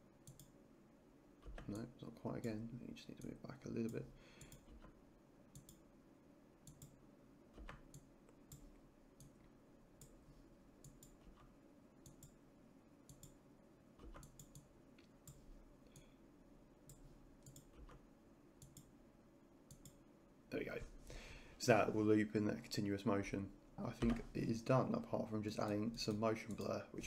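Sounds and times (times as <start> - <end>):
computer mouse clicking: 0.2 - 0.6, 3.2 - 5.8, 6.6 - 10.2, 10.8 - 12.4, 13.1 - 13.4, 14.0 - 16.1, 16.9 - 18.9, 19.7 - 20.0, 25.6 - 26.8.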